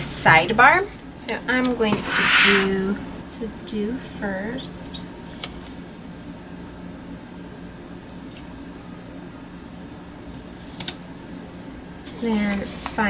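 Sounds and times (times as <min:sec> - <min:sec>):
steady low hum: 0:00.0 - 0:13.0
paper brushing: 0:01.9 - 0:02.8.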